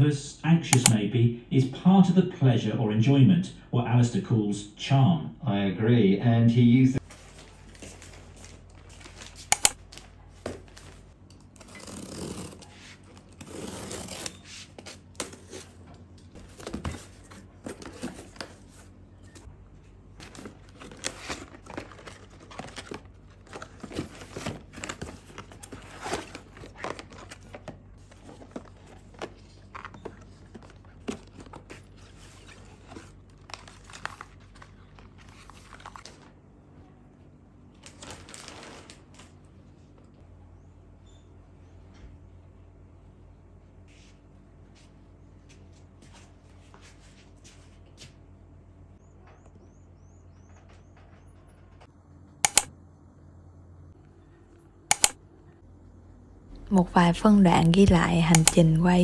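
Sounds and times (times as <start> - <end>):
sharp click: 0.8 - 1.0, 9.5 - 9.8, 52.5 - 52.7, 54.9 - 55.2, 58.2 - 58.7
plastic packaging crinkling and tearing: 20.2 - 27.6, 28.4 - 36.4, 37.8 - 39.4.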